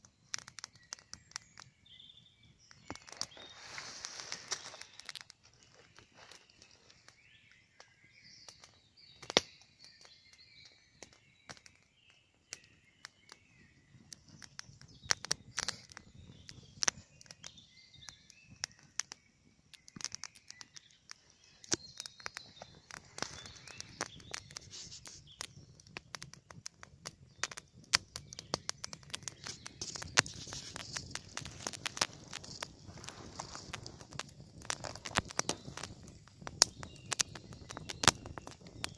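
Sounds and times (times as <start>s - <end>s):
campfire popping and crackling: 0.0s - 38.9s
songbirds singing: 0.0s - 38.9s.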